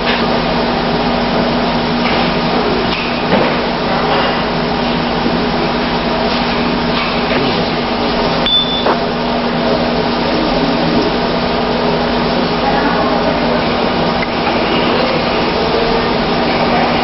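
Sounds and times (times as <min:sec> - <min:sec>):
steady hum with hiss: 0:00.0 - 0:17.0
short high beep: 0:08.4 - 0:09.0.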